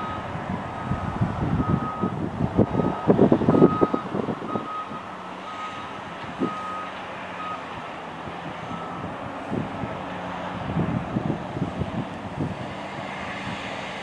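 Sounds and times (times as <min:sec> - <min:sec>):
diesel engines droning: 0:00.0 - 0:14.0
backup alarm beeps: 0:03.6 - 0:05.8
heavy rumbling and clatter: 0:05.6 - 0:14.0.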